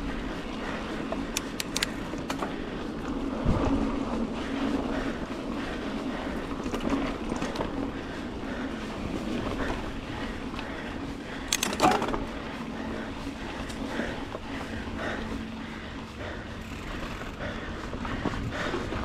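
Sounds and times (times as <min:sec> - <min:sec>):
bike tyres on dirt trail: 0:00.0 - 0:19.0
wind noise: 0:00.0 - 0:19.0.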